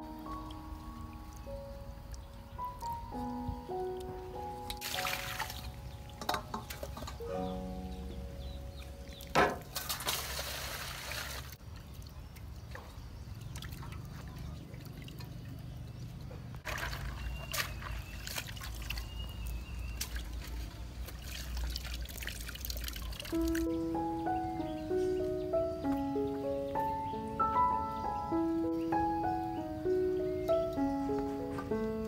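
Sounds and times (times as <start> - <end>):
water splashing: 0.0 - 26.2
water pouring into metal basin: 4.8 - 7.2, 9.6 - 11.6, 16.6 - 23.7
small knocks in basin: 6.2 - 7.3, 9.4 - 10.4.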